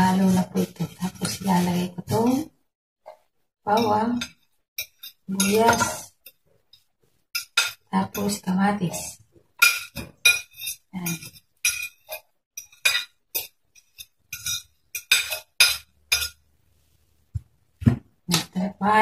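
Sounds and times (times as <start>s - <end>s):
fork clinking on ceramic plate: 3.8s - 6.8s, 7.4s - 8.3s, 9.6s - 16.4s.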